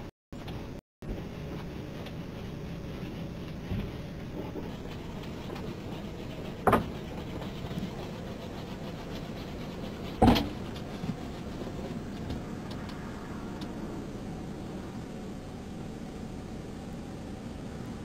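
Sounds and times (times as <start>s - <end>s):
loud thumps: 10.2s - 10.7s.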